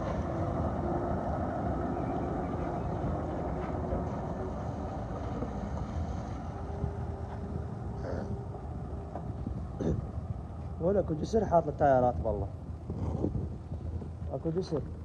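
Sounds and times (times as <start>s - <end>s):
heavy truck engine: 0.0s - 10.8s.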